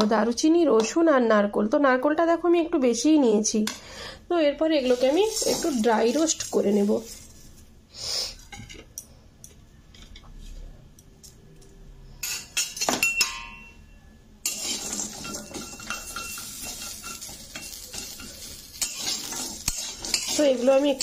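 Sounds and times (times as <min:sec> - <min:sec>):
metal utensils clinking on pan: 0:12.2 - 0:13.8, 0:14.4 - 0:21.0.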